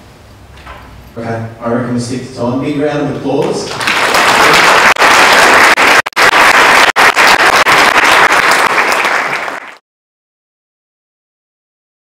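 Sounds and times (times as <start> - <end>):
audience applauding: 3.7 - 9.8.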